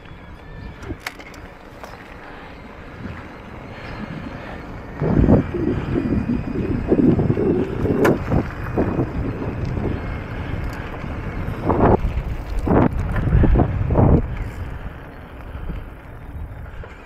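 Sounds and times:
bike tyres rolling on rough path: 0.0 - 17.0
wind buffeting microphone: 0.0 - 17.0.

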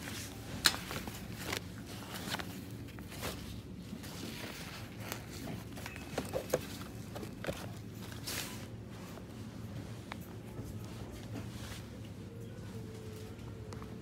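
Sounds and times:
steady low hum: 0.0 - 14.0
knocks of goods being handled: 5.2 - 8.0.

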